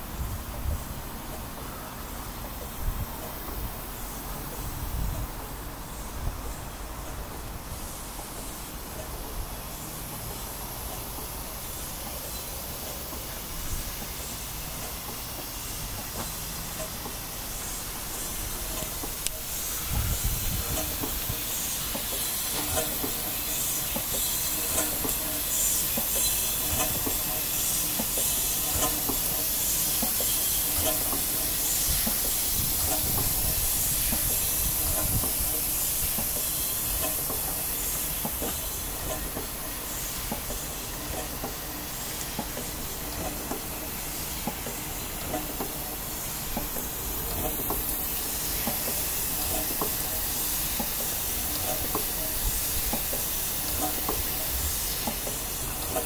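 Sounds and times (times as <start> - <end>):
steam engine hissing and pulsing: 0.0 - 56.0
valve gear clicks: 12.0 - 56.0.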